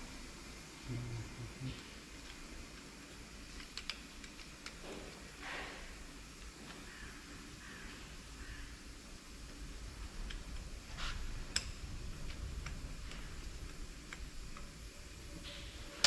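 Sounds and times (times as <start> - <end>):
faint workshop background: 0.0 - 16.0
small metallic clicks: 3.5 - 4.8.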